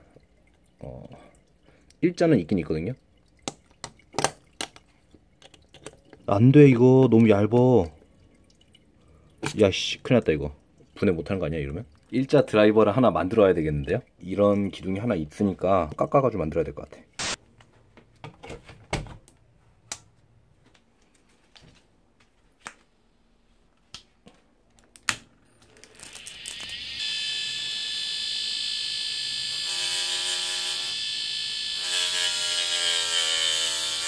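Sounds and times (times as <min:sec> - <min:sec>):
hard drive motor whine: 0:26.0 - 0:32.2.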